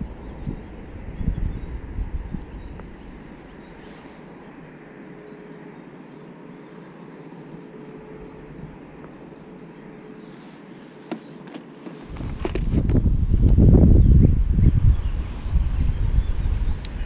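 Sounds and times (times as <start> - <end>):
faint steady hum: 0.0 - 17.0
small birds chirping: 0.0 - 17.0
outdoor hush: 2.0 - 12.7.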